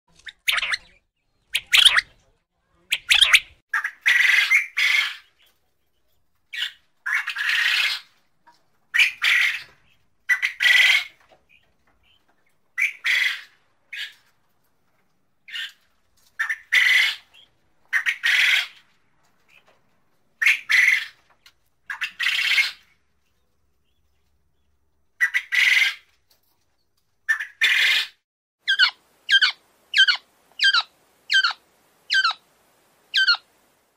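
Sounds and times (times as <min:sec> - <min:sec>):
quail calling: 0:00.2 - 0:02.1, 0:02.9 - 0:05.3, 0:06.6 - 0:08.1, 0:08.9 - 0:11.2, 0:12.8 - 0:14.2, 0:16.4 - 0:18.8, 0:20.4 - 0:21.2, 0:25.2 - 0:26.1, 0:27.3 - 0:32.4, 0:33.1 - 0:33.5.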